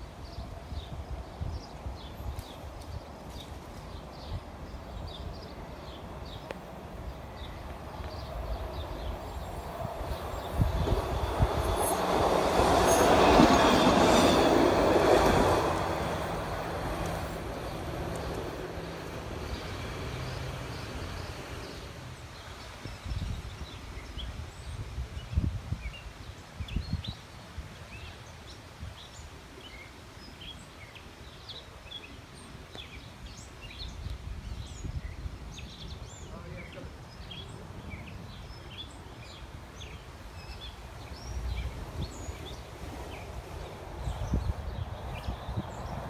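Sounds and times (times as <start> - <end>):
light-rail trolley wheels on rails: 0.0 - 22.8, 37.2 - 46.0
birds chirping: 0.2 - 24.8, 25.8 - 46.0.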